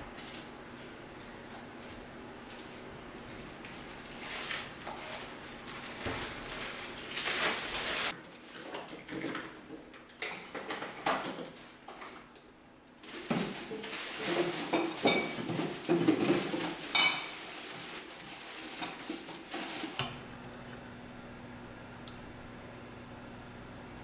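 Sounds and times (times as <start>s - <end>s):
plastic bag rustling: 1.8s - 8.6s, 13.0s - 20.3s.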